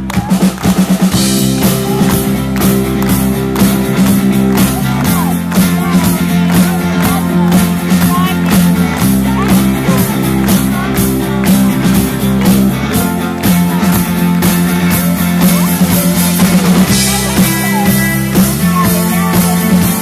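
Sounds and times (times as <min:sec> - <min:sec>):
bass guitar: 0:00.0 - 0:20.0
drum kit beat: 0:00.0 - 0:20.0
electric guitars: 0:00.0 - 0:20.0
keyboard: 0:00.0 - 0:20.0.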